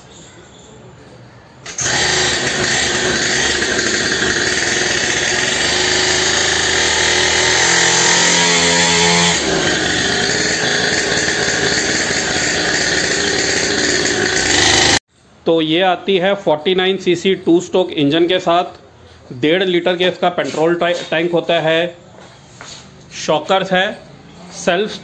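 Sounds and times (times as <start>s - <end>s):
small two-stroke engine running: 1.6s - 15.0s.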